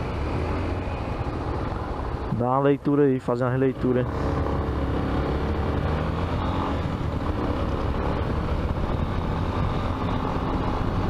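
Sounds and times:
road noise: 0:00.0 - 0:11.0
motorcycle engine running: 0:03.7 - 0:11.0.

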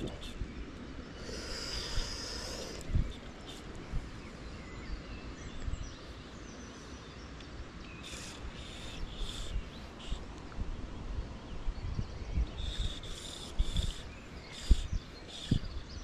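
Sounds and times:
faint bird calls: 0:00.0 - 0:05.0, 0:07.8 - 0:10.4, 0:12.4 - 0:16.0
wind rumbling on microphone: 0:00.0 - 0:16.0.

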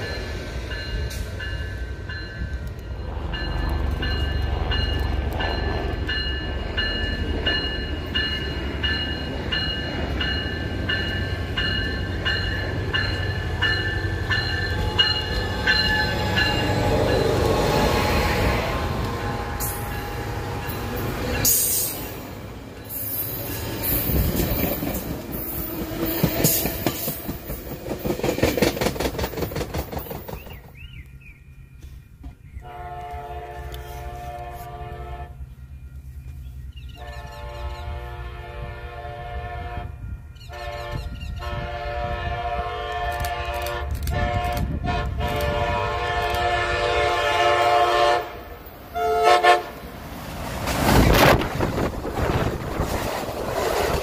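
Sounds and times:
train wheels clattering on rails: 0:00.0 - 0:31.0
train horn blasts: 0:32.6 - 0:35.6, 0:36.9 - 0:49.8.

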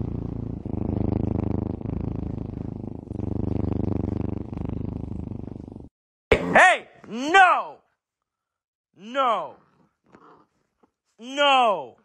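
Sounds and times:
cat purring: 0:00.0 - 0:05.9.

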